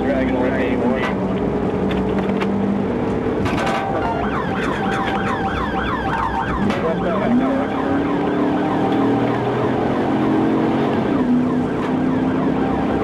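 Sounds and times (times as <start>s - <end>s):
car engine and road noise: 0.0s - 13.0s
police siren yelping: 3.7s - 13.0s.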